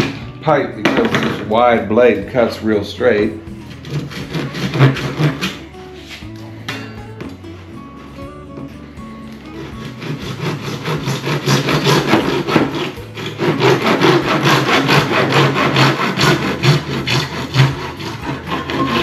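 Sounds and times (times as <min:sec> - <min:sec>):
hand saw cutting plastic pipe: 0:03.7 - 0:06.3, 0:09.5 - 0:19.0.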